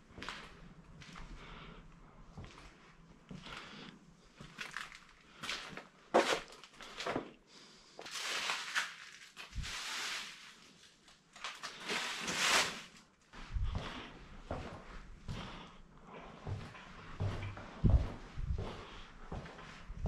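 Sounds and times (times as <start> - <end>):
footsteps crunching over debris: 4.4 - 7.4, 8.0 - 10.4.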